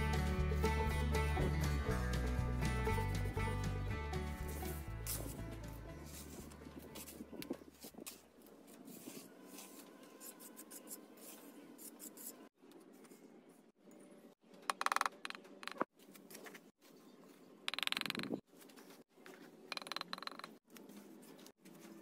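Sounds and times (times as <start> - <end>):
background music: 0.0 - 7.1.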